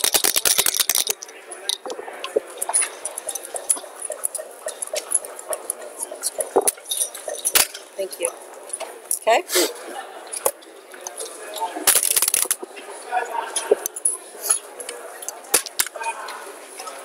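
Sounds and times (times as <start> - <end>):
dice thrown onto board: 0.0 - 1.2, 11.9 - 12.6
checkers clicking on board: 0.0 - 1.9
dice rattling in a cup: 0.0 - 1.9, 11.9 - 12.6.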